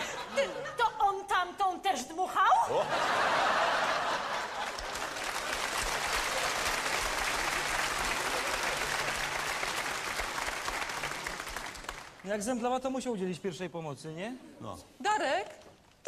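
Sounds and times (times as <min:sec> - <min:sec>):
audience laughter: 0:02.7 - 0:05.2
audience applauding: 0:03.5 - 0:12.5.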